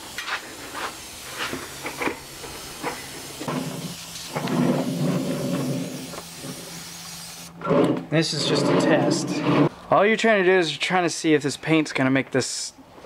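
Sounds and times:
airbrush hissing spurts: 0:00.0 - 0:07.5.

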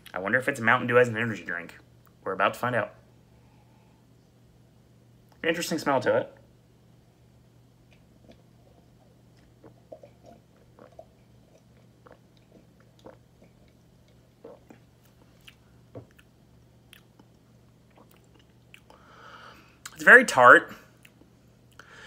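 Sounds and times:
low steady hum: 0:00.0 - 0:22.0
man swallowing a drink: 0:07.9 - 0:16.3
wet mouth clicks: 0:16.9 - 0:19.0.

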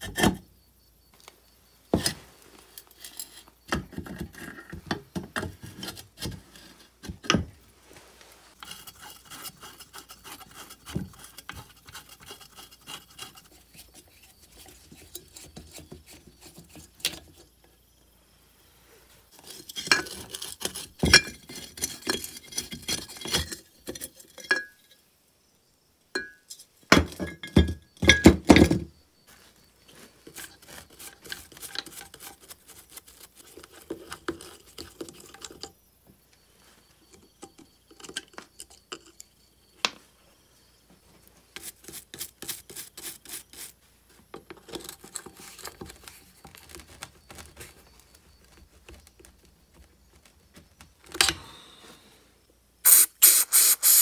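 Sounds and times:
metal parts clinking and scraping: 0:02.7 - 0:03.6.

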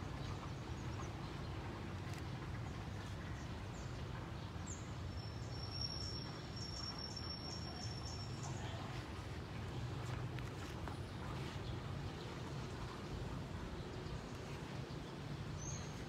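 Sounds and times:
low steady rumble: 0:06.2 - 0:16.0.

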